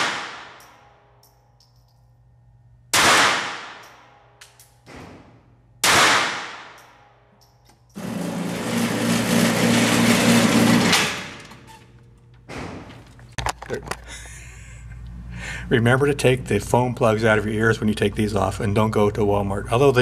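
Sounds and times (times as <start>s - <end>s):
pistol shots indoors: 0.0s - 8.0s.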